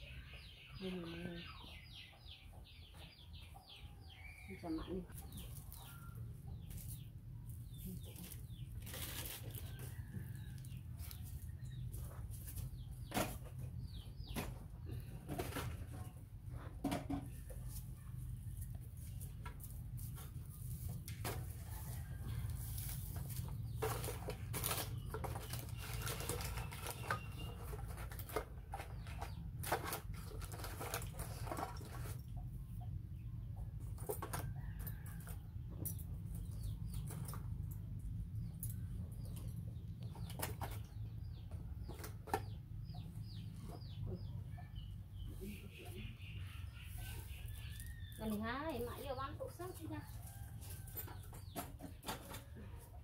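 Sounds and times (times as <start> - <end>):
rummaging in wicker basket: 5.3 - 13.7, 18.6 - 32.4.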